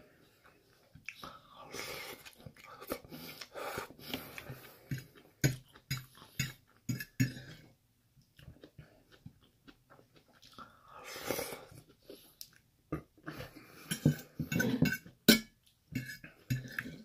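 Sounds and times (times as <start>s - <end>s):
person chewing food: 0.1s - 17.0s
fork against a plate: 4.9s - 7.4s, 13.8s - 17.0s.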